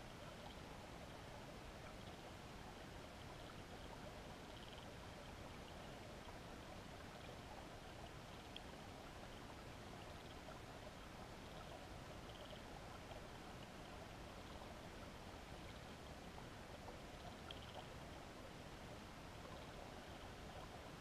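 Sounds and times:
underwater river flow: 0.0 - 21.0
small ticks: 3.2 - 5.0, 8.3 - 9.4, 11.4 - 13.8, 17.2 - 18.2.

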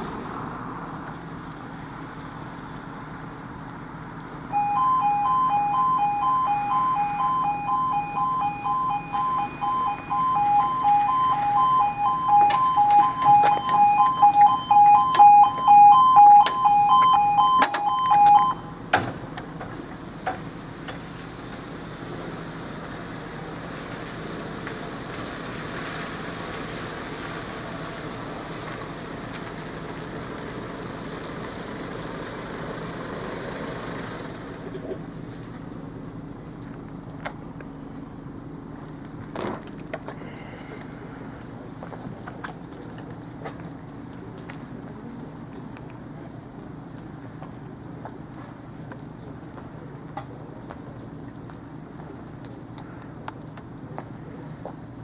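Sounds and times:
level crossing alarm beeping: 4.5 - 18.8.

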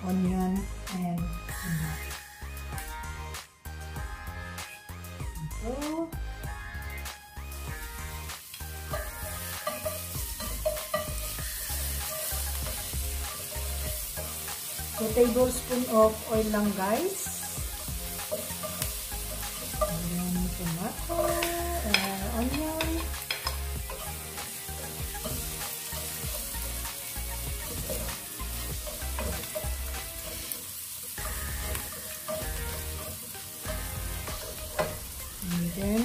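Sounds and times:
garlic and onion sizzling in oil: 5.3 - 36.0
spatula scraping pan: 8.9 - 36.0.

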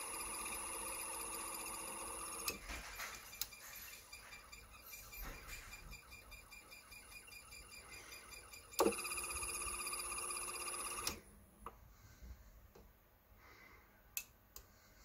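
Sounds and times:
electric motor ticking: 0.0 - 2.6, 8.8 - 11.2.

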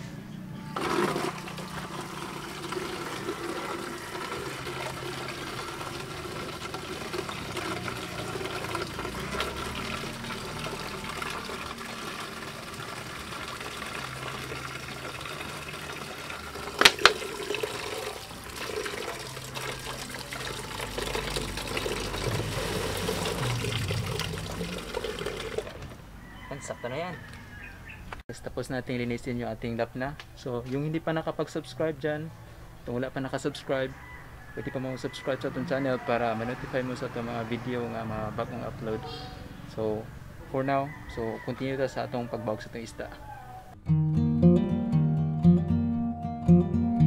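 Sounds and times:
water splashing through mesh strainer: 0.8 - 25.8
water dribbling onto wooden planks: 1.3 - 26.0.

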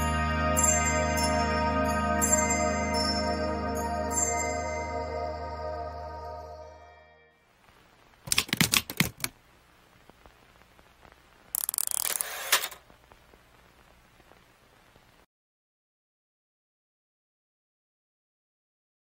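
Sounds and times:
background music: 0.0 - 7.4
sharp clicks: 8.3 - 9.4, 11.5 - 12.8
hissy burst of clicks: 11.5 - 12.9.

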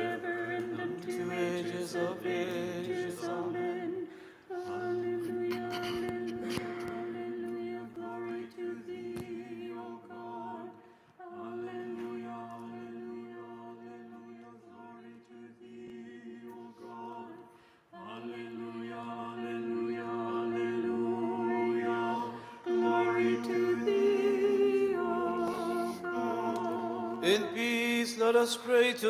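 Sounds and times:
unaccompanied liturgical chant: 0.0 - 29.0.

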